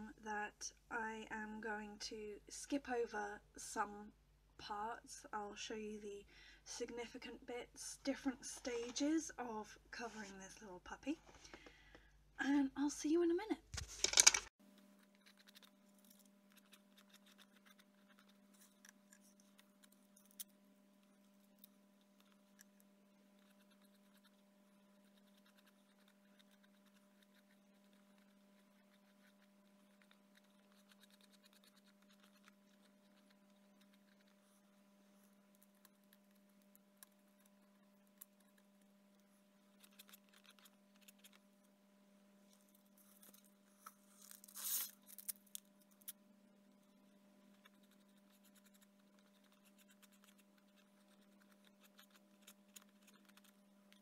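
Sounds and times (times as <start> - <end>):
faint steady hum: 0.0 - 54.0
brush and paper scratches and taps: 13.8 - 14.5.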